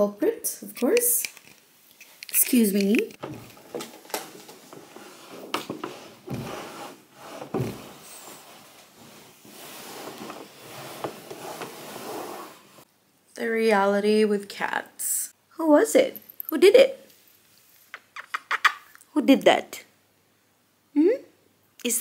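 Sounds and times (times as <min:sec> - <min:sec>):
cloth wiping wooden table: 0:04.5 - 0:12.9.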